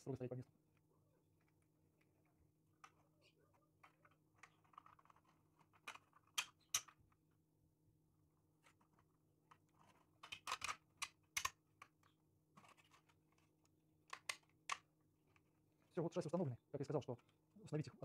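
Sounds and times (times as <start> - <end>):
plastic parts clicking and tapping: 0.7 - 7.4, 8.6 - 15.6.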